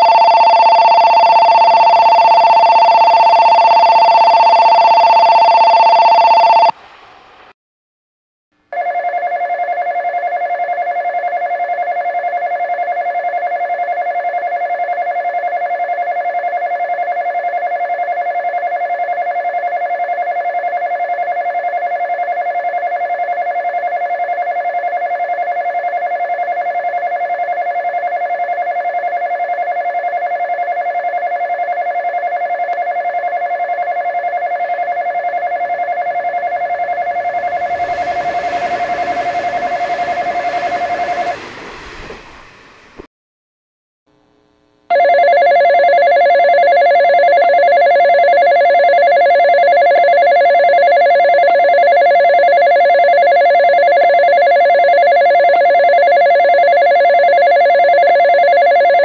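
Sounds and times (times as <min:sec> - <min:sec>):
electric bell ringing rapidly: 0:00.0 - 0:06.7.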